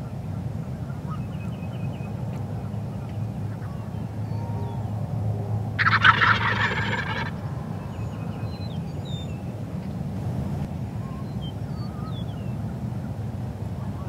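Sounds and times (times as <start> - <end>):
turkey gobbling: 5.8 - 7.4.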